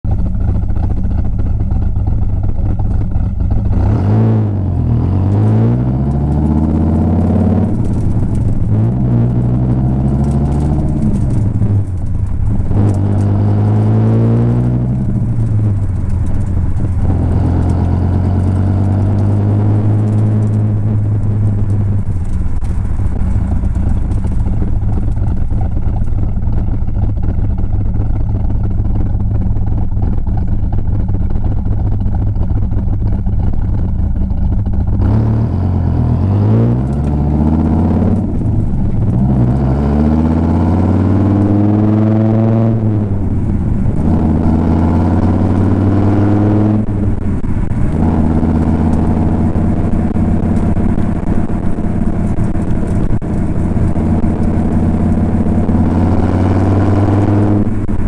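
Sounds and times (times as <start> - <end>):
sports car exhaust revving: 0.1 - 58.0.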